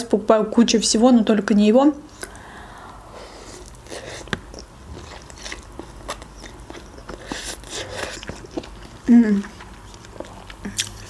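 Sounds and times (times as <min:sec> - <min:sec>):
wet chewing with mouth clicks: 0:03.4 - 0:11.0.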